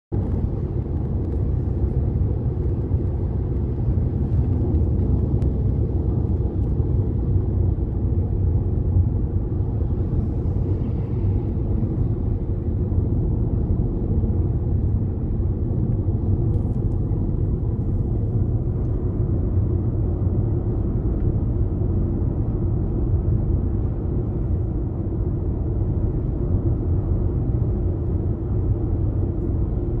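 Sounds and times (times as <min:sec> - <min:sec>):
car cabin road rumble: 0:00.1 - 0:30.0.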